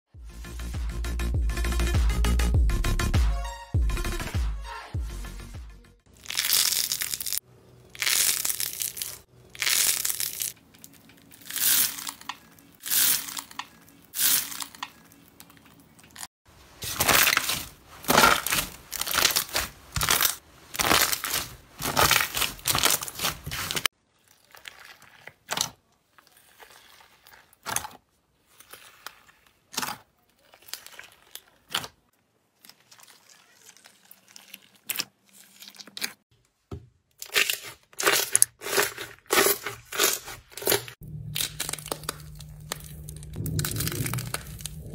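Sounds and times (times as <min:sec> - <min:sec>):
slime squelching and popping: 0:16.8 - 0:32.0, 0:37.2 - 0:44.9
small slime crackles: 0:16.8 - 0:36.2.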